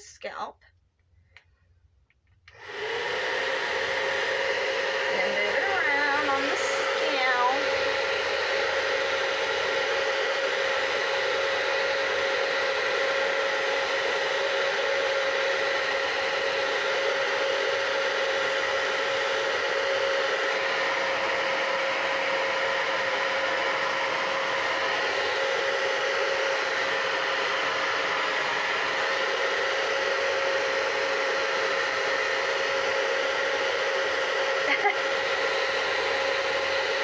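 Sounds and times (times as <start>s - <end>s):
hair dryer running: 0.0s - 0.3s, 2.5s - 37.0s.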